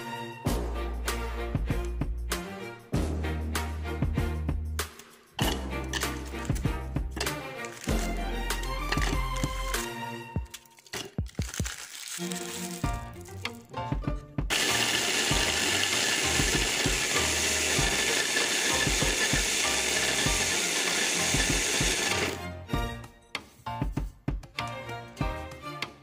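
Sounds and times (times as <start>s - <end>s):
background music: 0.0s - 26.0s
food chopper grinding biscuits: 7.2s - 8.1s, 8.8s - 9.9s, 14.5s - 22.5s.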